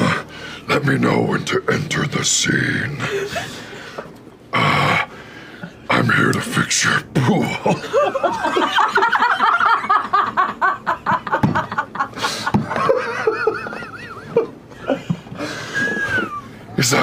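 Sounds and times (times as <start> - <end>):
people laughing: 3.0 - 3.8, 7.4 - 16.7.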